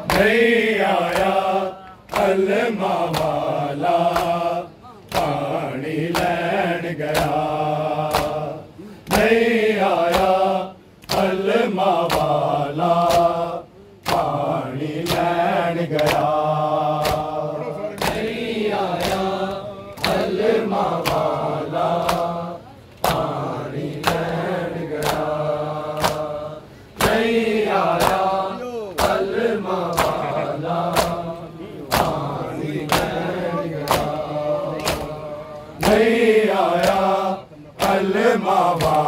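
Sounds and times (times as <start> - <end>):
men chanting in unison: 0.0 - 39.0
hands slapping bare chests: 3.1 - 3.4, 4.1 - 4.4, 5.1 - 5.4, 6.1 - 6.4, 8.1 - 8.4, 12.0 - 12.4, 14.0 - 14.4, 15.9 - 16.4, 17.0 - 17.3, 18.0 - 18.4, 19.0 - 19.3, 21.0 - 21.4, 22.0 - 22.3, 23.0 - 23.4, 24.0 - 25.3, 25.9 - 26.3, 27.9 - 28.3, 29.0 - 30.2, 30.9 - 31.2, 31.9 - 35.2, 35.8 - 36.1, 36.7 - 37.1, 38.7 - 39.0.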